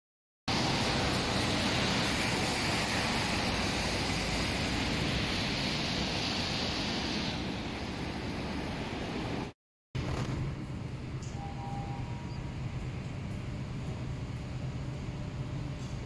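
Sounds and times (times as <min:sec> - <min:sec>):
tyres hissing on wet road: 0:00.5 - 0:09.6.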